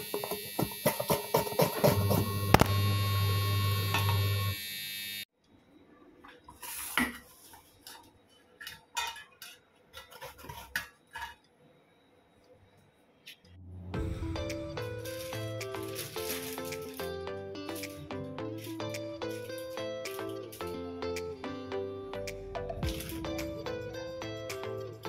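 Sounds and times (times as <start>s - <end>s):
background music: 13.6s - 25.0s.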